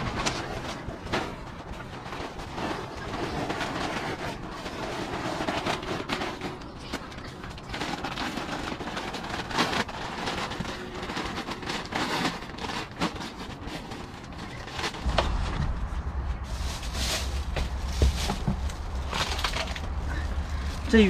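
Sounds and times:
tent fabric rustling: 7.7 - 21.0
low rumble: 14.9 - 21.0.

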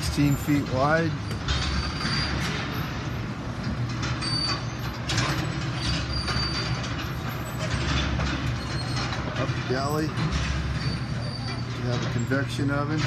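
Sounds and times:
low mechanical hum: 0.0 - 13.0
faint high squeaks: 10.8 - 12.4.

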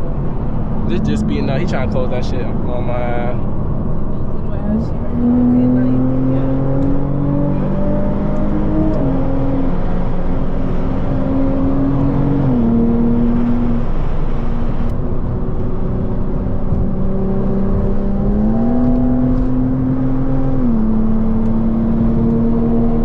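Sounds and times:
car engine and road noise: 0.0 - 23.0.

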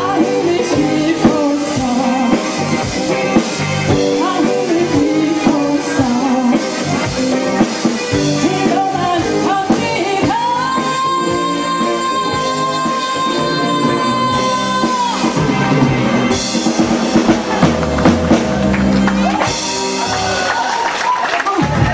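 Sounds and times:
woman singing: 0.0 - 3.0, 3.9 - 7.2, 8.1 - 16.0
live rock band playing: 0.0 - 21.9.

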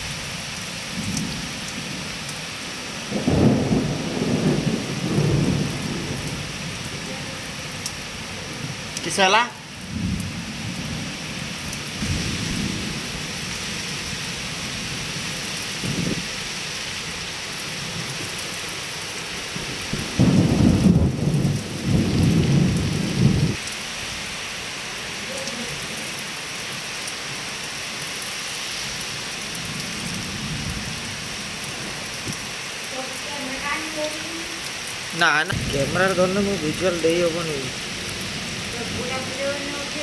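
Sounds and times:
heavy rain hissing: 0.0 - 40.0
thunder rumbles: 0.9 - 8.9, 9.7 - 16.4, 19.5 - 23.7, 29.5 - 40.0.

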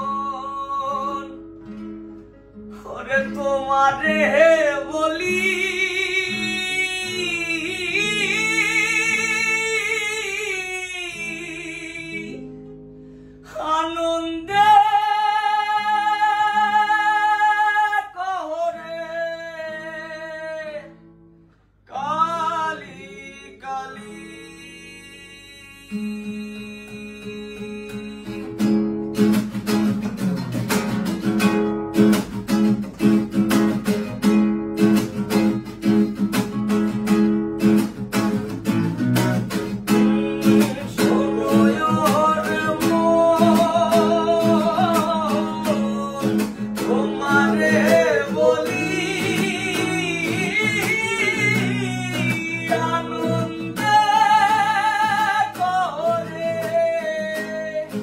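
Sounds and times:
acoustic guitars strumming: 0.0 - 58.0
men singing: 39.9 - 58.0.

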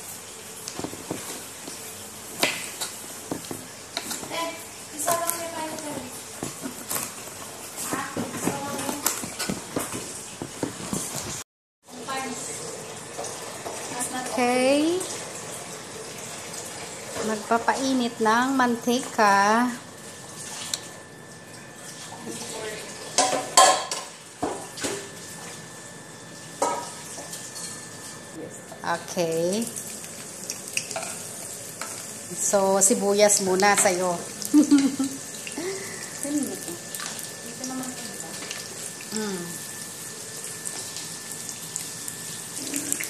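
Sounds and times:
onion sizzling in hot oil: 28.8 - 43.0.

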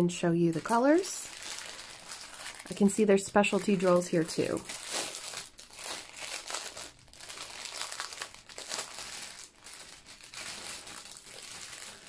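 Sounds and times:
plastic bag crinkling: 0.4 - 12.0.

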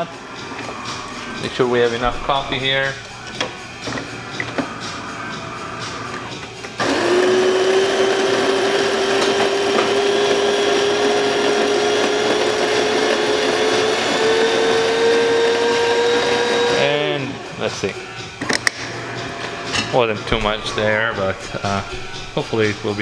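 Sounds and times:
burr grinder grinding beans: 2.4 - 17.2.

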